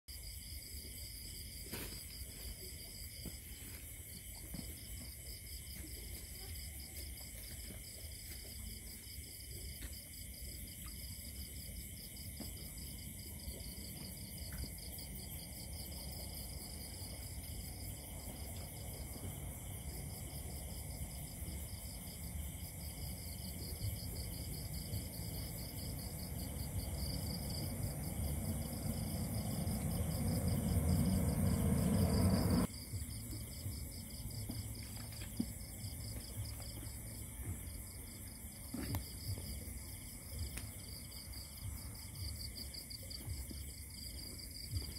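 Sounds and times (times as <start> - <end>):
insects trilling: 2.8 - 42.9
low rumble: 23.8 - 35.0.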